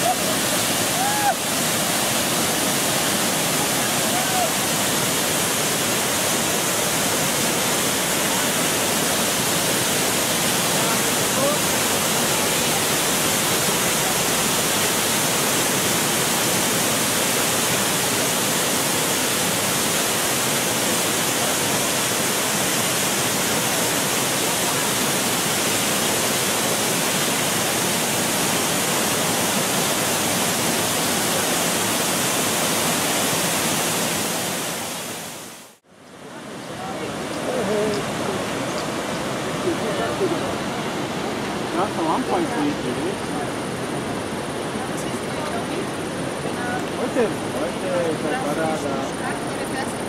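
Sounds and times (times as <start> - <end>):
waterfall rushing: 0.0 - 50.0.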